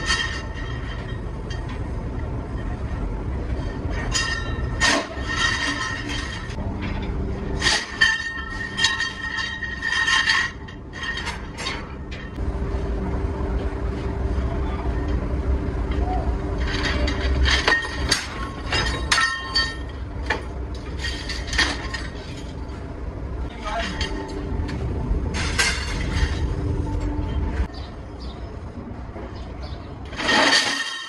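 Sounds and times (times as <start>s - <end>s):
low machinery hum: 0.0s - 31.0s.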